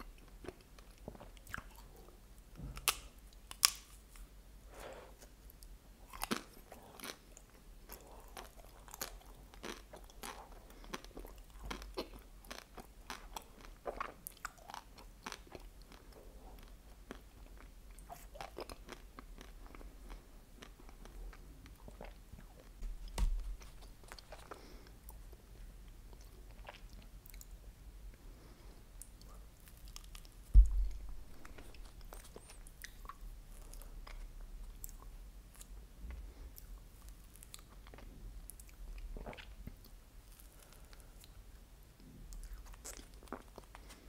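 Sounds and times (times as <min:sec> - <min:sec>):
chewing ice cream bar: 0:05.6 - 0:22.8, 0:42.3 - 0:44.0
loud crunch with low thud: 0:30.6 - 0:31.3.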